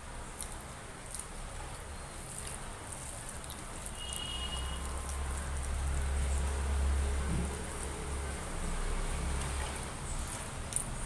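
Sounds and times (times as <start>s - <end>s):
wet chewing and mouth sounds: 0.2s - 6.6s, 9.3s - 11.0s.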